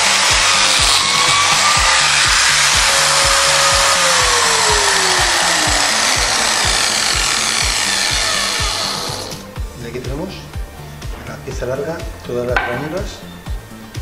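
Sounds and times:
biscuit joiner whirring: 0:00.0 - 0:09.5
background music with steady beat: 0:00.0 - 0:14.0.

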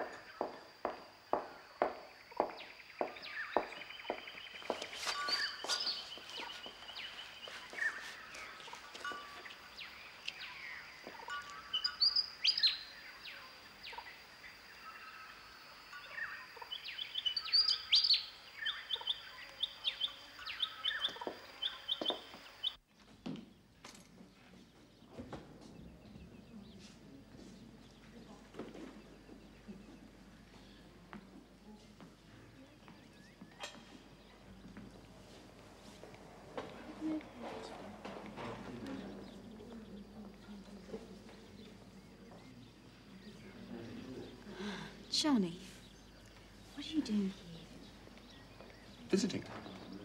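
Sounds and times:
birds chirping and trilling: 0:00.0 - 0:50.0
faint steady high tone: 0:05.0 - 0:14.1, 0:14.8 - 0:16.6.

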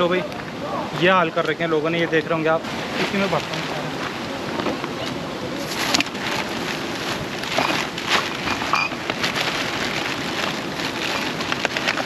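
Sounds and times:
stream water rushing: 0:00.0 - 0:12.0
plastic litter crinkling: 0:05.6 - 0:12.0.

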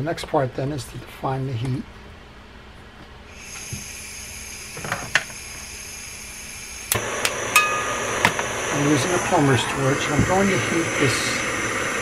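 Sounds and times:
gas hiss: 0:03.3 - 0:12.0
torch flame rushing: 0:03.3 - 0:12.0.

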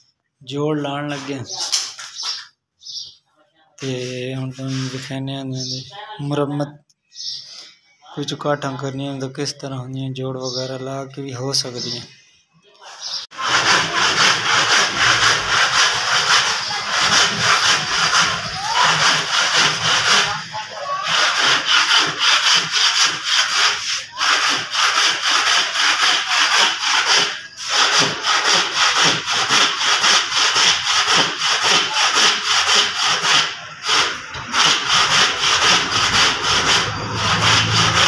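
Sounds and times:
hand saw cutting wood: 0:13.3 - 0:38.0.

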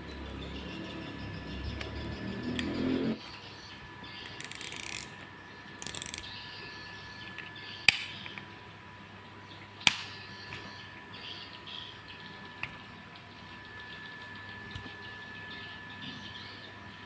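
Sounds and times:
reel ratcheting clicks: 0:04.4 - 0:05.2, 0:05.8 - 0:06.3.

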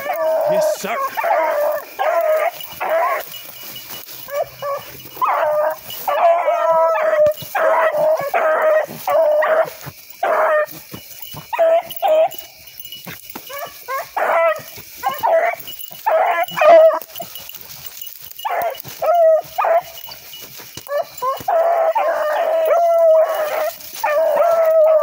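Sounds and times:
hound baying: 0:00.0 - 0:25.0.

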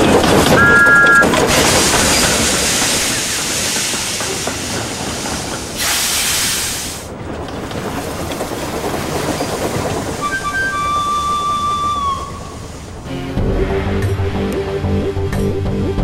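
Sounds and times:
steam train hissing: 0:01.2 - 0:07.2, 0:08.0 - 0:13.4
burst of steam hiss: 0:01.6 - 0:07.1.

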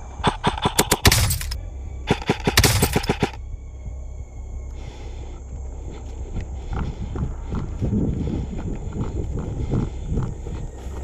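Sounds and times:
airsoft rifle fire: 0:00.2 - 0:03.4.

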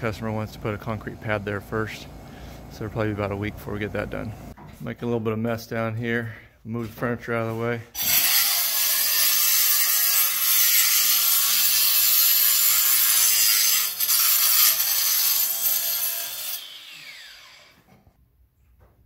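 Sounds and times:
power saw cutting concrete: 0:08.0 - 0:17.8.

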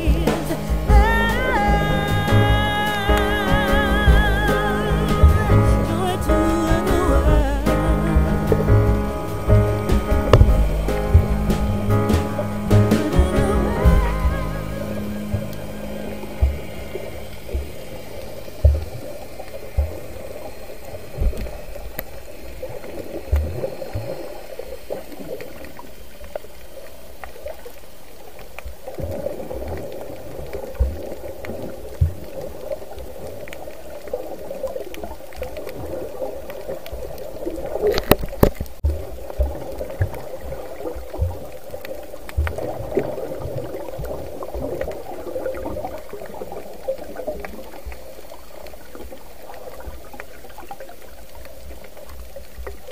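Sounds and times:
low underwater thumps: 0:00.0 - 0:22.1, 0:22.8 - 0:24.2, 0:31.9 - 0:32.5, 0:41.1 - 0:41.6, 0:42.3 - 0:46.2
underwater watery rush: 0:00.0 - 0:52.9.

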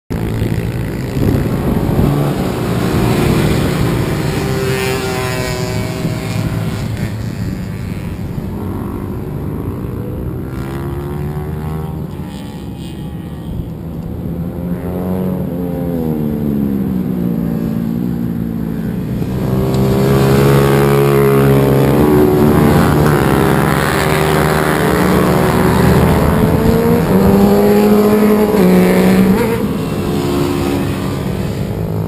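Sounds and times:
racing motorcycle engines: 0:00.1 - 0:32.0.

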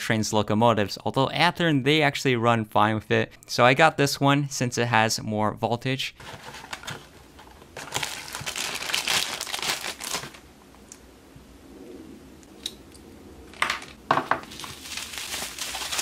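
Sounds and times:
plastic packaging crinkling: 0:06.2 - 0:10.4, 0:13.6 - 0:16.0.

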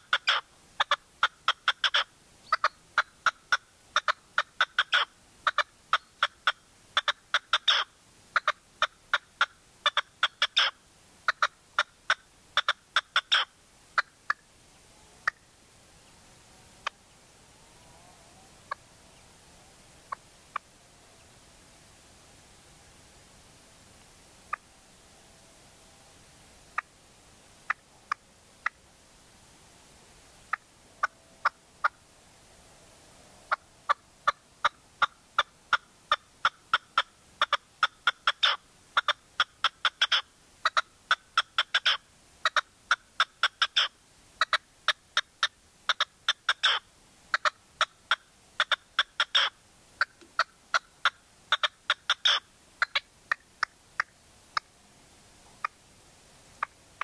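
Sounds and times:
partridge calling: 0:00.0 - 0:14.4, 0:33.9 - 0:54.7.

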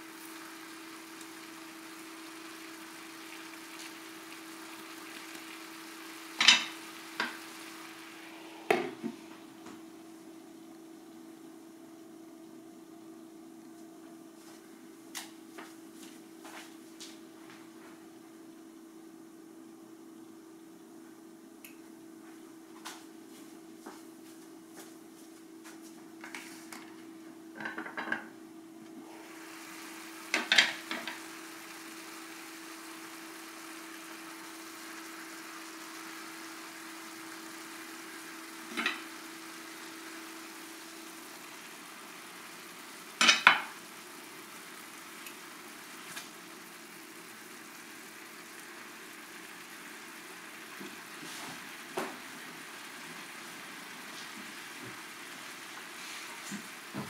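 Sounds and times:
light sizzle: 0:00.0 - 0:57.0
glass lid clattering off skillet: 0:06.4 - 0:07.4.

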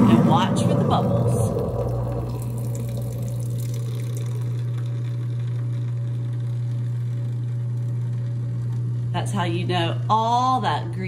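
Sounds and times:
garbage disposal humming: 0:00.0 - 0:11.0
tap water pouring: 0:01.1 - 0:06.6.

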